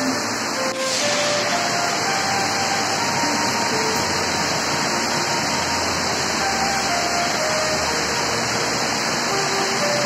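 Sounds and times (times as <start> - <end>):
heavy rain hissing: 0.0 - 10.0
water pouring off metal roof: 0.0 - 10.0.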